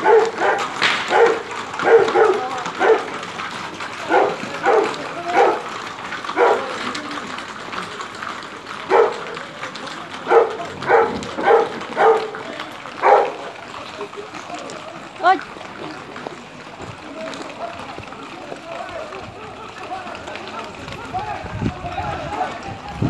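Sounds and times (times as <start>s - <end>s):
dog barking: 0.0s - 3.2s, 4.1s - 5.7s, 6.4s - 6.7s, 8.9s - 9.3s, 10.3s - 12.4s, 13.0s - 13.4s.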